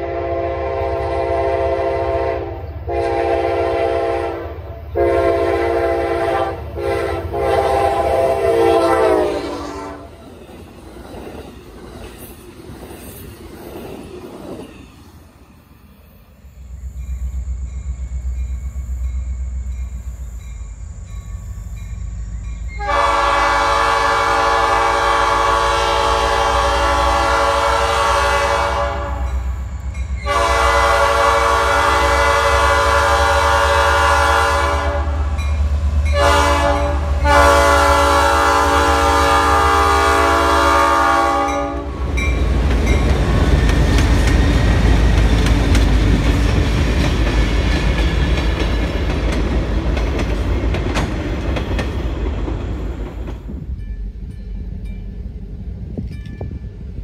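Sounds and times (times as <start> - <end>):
locomotive air horn blasts: 0.0 - 10.2, 22.8 - 29.5, 30.2 - 35.4, 36.0 - 42.2
locomotive engine rumbling: 0.0 - 15.0, 15.8 - 57.0
train wheels rumbling: 0.0 - 57.0.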